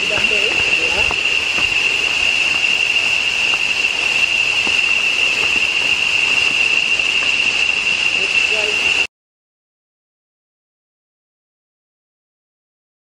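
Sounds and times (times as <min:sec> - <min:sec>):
footsteps on dirt trail: 0:00.0 - 0:07.6
rainforest insects droning: 0:00.0 - 0:09.1.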